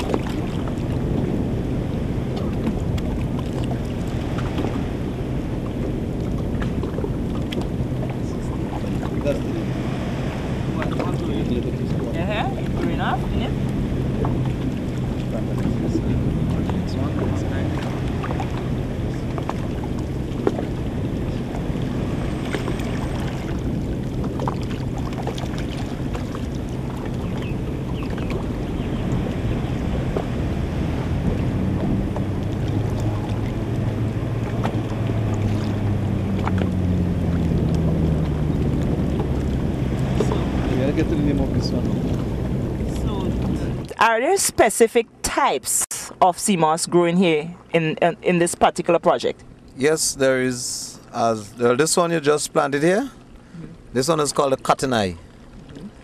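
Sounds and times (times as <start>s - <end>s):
splashes and drips of water: 0.0s - 1.7s, 2.3s - 44.0s, 55.1s - 56.0s
wind buffeting microphone: 0.0s - 44.6s
low hum: 0.0s - 45.2s.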